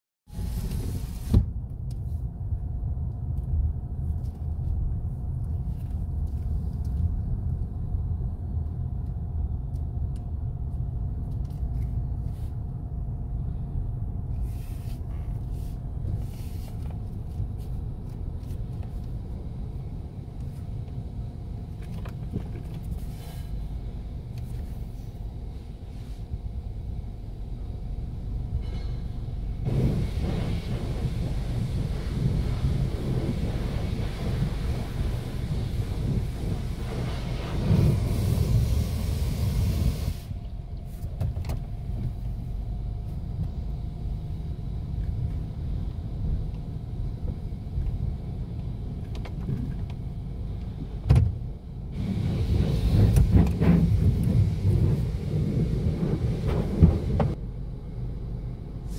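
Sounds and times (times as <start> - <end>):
low rumble inside a car: 0.3 - 58.9
pressure water spraying on windshield: 29.6 - 40.3, 52.0 - 57.4.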